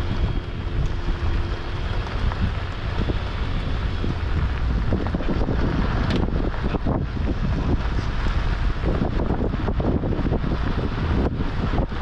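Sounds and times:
tyres and engine rumbling: 0.0s - 12.0s
wind buffeting microphone: 0.0s - 12.0s
small ticks of gravel: 0.4s - 8.4s.

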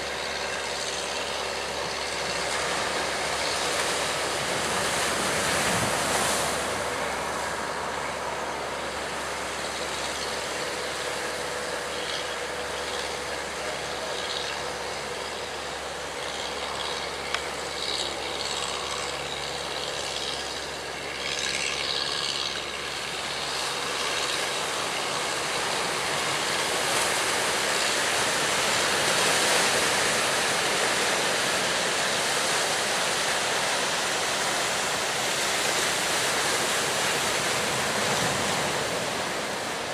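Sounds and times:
water splashes: 1.9s - 39.9s
surf and wind rushing: 2.5s - 9.5s, 24.6s - 39.9s.

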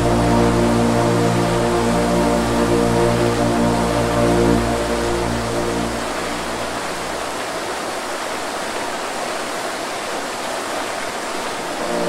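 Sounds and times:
low music drone: 0.0s - 7.5s, 11.8s - 12.0s
waterfall splashing into pool: 6.4s - 12.0s.

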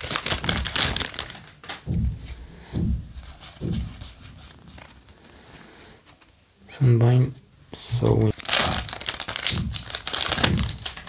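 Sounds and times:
foil wrapper crinkling: 0.0s - 1.8s, 8.3s - 11.0s
soft low thumps: 0.2s - 5.1s, 7.8s - 11.0s.

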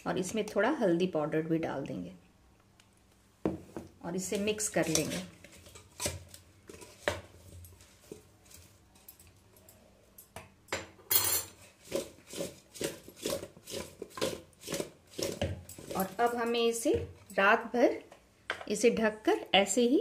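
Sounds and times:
spoon scraping a metal pot: 4.6s - 7.0s
pot shaken with knocks: 11.5s - 17.3s.

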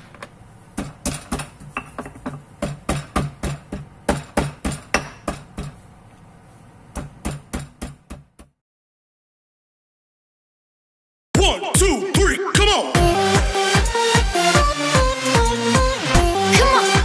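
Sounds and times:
stone pestle pounding in mortar: 0.8s - 5.8s.

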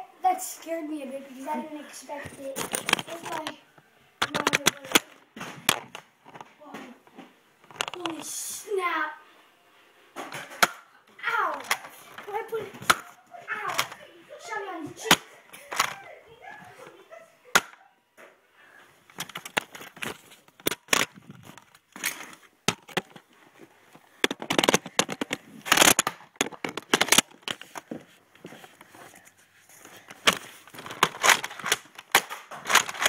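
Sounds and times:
toy blaster clicks and knocks: 4.2s - 6.4s, 7.7s - 8.2s, 11.5s - 14.0s, 15.0s - 16.0s, 19.1s - 23.2s, 24.2s - 27.9s, 30.1s - 33.0s.

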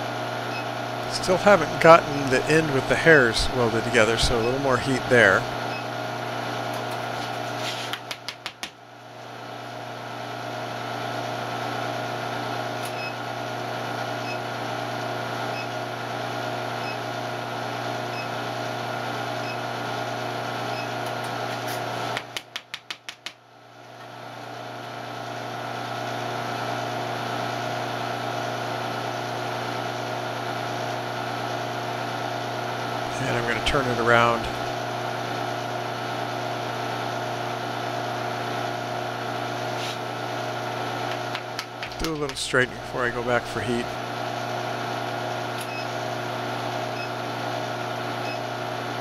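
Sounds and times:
induction heater humming: 0.0s - 22.6s, 23.6s - 49.0s
quick run of clicks: 7.8s - 8.8s, 41.1s - 42.4s.

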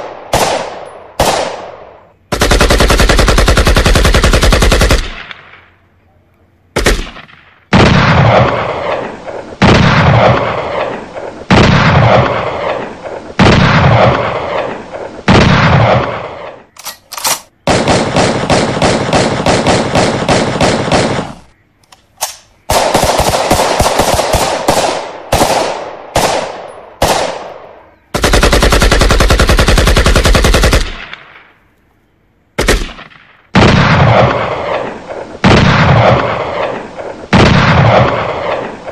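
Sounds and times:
rapid automatic gunfire: 0.0s - 1.7s, 2.3s - 5.4s, 17.6s - 21.4s, 22.7s - 27.5s, 28.1s - 31.2s
heavy single gunshots echoing: 6.8s - 16.5s, 32.6s - 38.9s.

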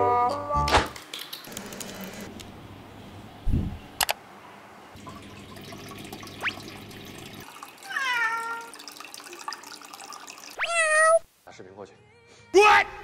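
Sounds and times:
cat meowing: 7.9s - 8.7s, 10.6s - 11.2s.

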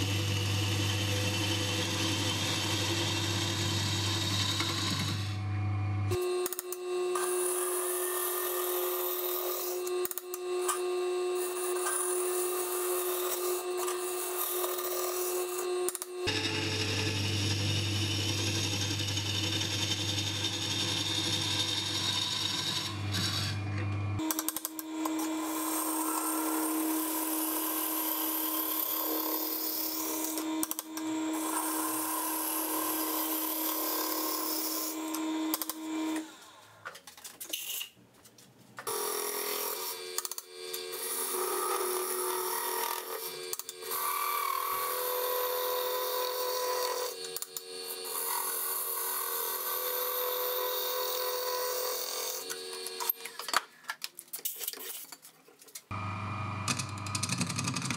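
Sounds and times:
tool scraping spinning wood: 0.0s - 5.4s, 7.1s - 23.7s
wood lathe motor hum: 0.0s - 36.6s, 38.9s - 53.3s, 55.9s - 57.2s.

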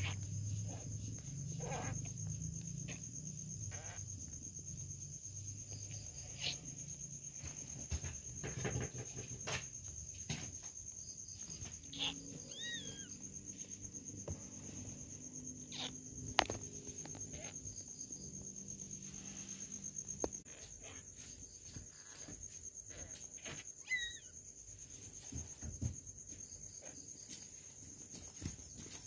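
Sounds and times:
kitten squeaking: 0.0s - 0.9s, 11.8s - 13.2s, 15.6s - 16.5s, 23.4s - 24.3s
cricket trilling: 0.0s - 29.0s
kittens nursing rustles and clicks: 7.4s - 13.4s, 20.3s - 29.0s.

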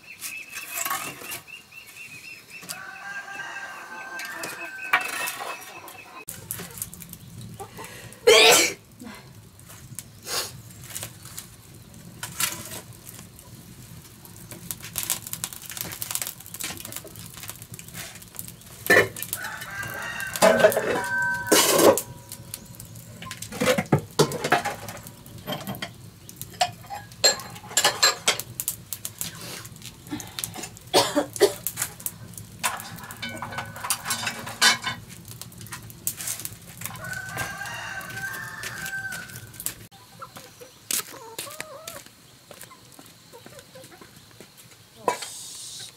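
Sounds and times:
rooster crowing: 2.7s - 6.3s, 19.3s - 22.6s, 36.8s - 39.7s.

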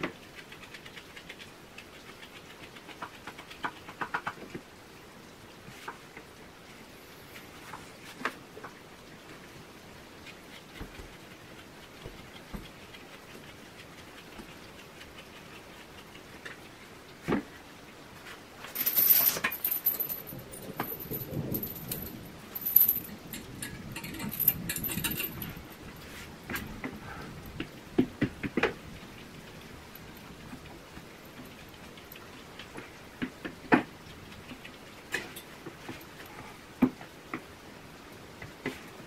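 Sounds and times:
metallic jingling and clinking: 18.7s - 26.0s.

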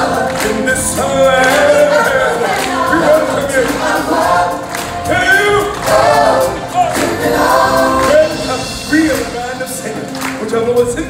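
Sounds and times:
cast singing in chorus: 0.0s - 8.7s
musical accompaniment: 0.0s - 11.0s.

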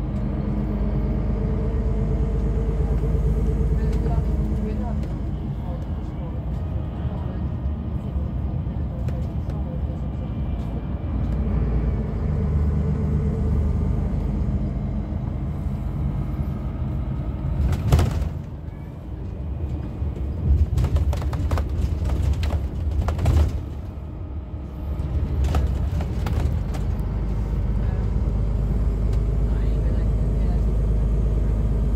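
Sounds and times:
bus engine and road rumble: 0.0s - 31.9s.

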